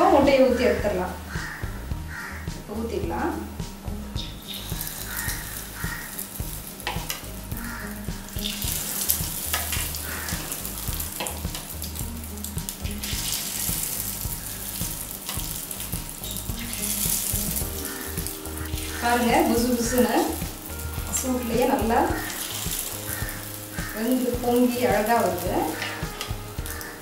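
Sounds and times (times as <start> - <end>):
batter sizzling in hot oil: 3.6 - 27.0.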